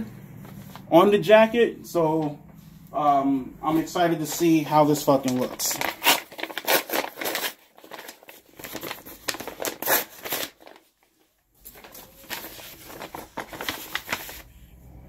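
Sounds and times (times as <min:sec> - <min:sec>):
packaging crinkling and tearing: 0:04.2 - 0:14.5.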